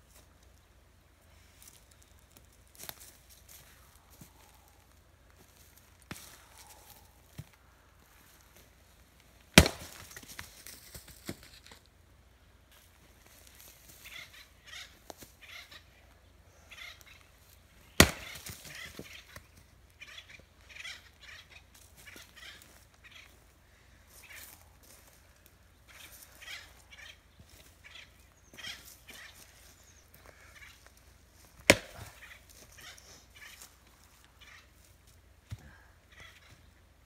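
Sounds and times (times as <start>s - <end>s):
splitting tool striking wood: 9.6s - 10.0s, 18.0s - 18.4s, 31.7s - 32.0s
split wood pieces falling: 9.6s - 11.5s.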